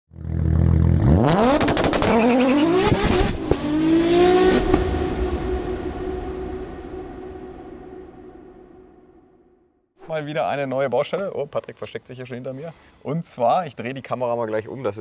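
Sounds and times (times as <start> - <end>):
engine revving: 0.1 - 8.0.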